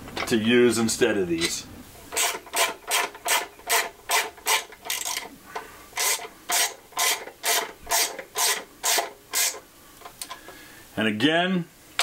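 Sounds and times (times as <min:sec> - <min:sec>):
ratchet wrench clicking: 0:02.1 - 0:05.3, 0:06.0 - 0:09.6.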